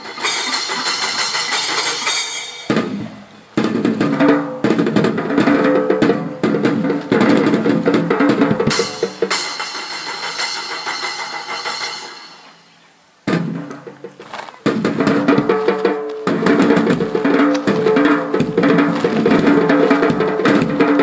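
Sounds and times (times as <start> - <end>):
bass drum and snare strikes: 0.0 - 12.6, 13.2 - 21.0
music with loud drumming: 0.0 - 12.7, 13.3 - 21.0
held instrument tones: 6.9 - 12.9.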